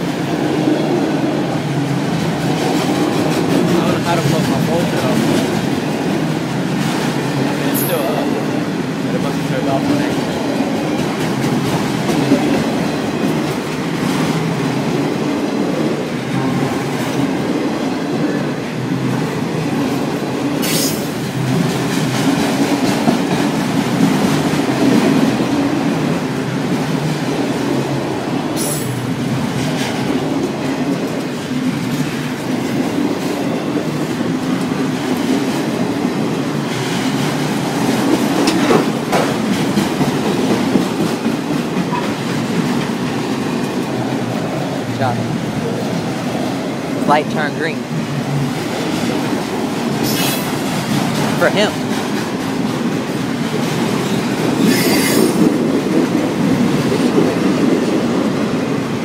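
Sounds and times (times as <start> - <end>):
train wheels rumbling on rail: 0.0 - 59.0
high wheel squeals: 54.6 - 55.4.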